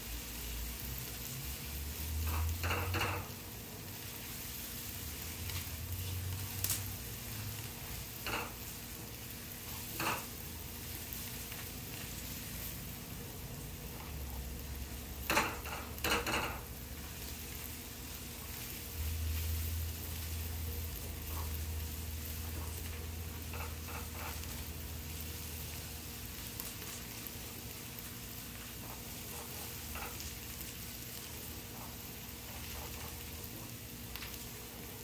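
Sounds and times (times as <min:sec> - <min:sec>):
food sizzling in oil: 0:00.0 - 0:35.0
spatula scraping pan: 0:02.0 - 0:04.4, 0:21.0 - 0:25.5, 0:28.7 - 0:30.6.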